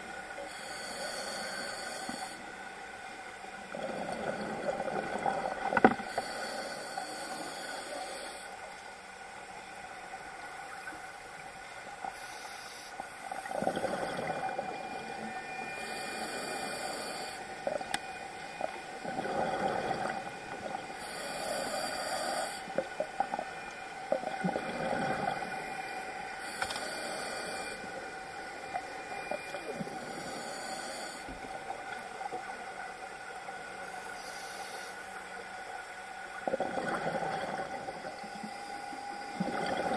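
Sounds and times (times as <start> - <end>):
regulator inhalation hiss: 0.4 - 2.5, 6.1 - 8.6, 12.1 - 13.2, 15.8 - 17.6, 21.0 - 22.8, 25.4 - 28.0, 29.1 - 31.4, 33.9 - 35.2.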